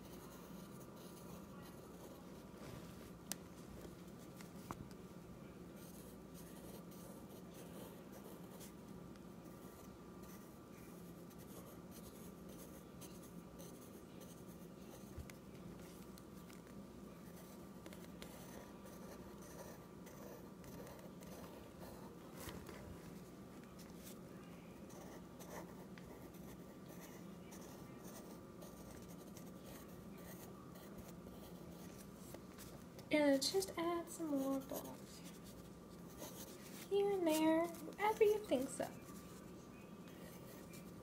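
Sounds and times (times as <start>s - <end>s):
low steady hum: 0.0s - 41.0s
pencil scratching on paper: 5.8s - 8.8s, 9.5s - 15.2s, 17.2s - 23.2s, 24.8s - 32.8s, 34.3s - 39.5s.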